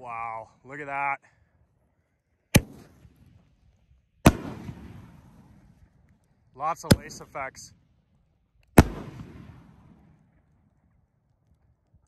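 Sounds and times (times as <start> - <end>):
firework burst echoing: 4.2 - 5.6, 8.8 - 10.2.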